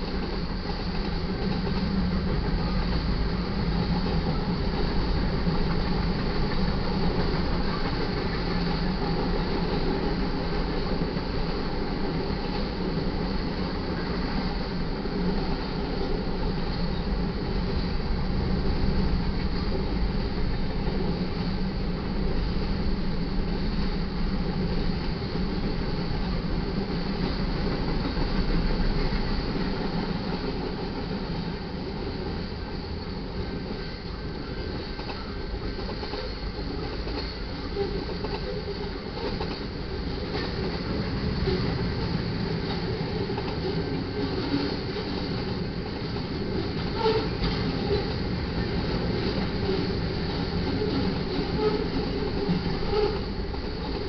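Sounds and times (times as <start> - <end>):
freight train wheels clattering: 0.0 - 54.0.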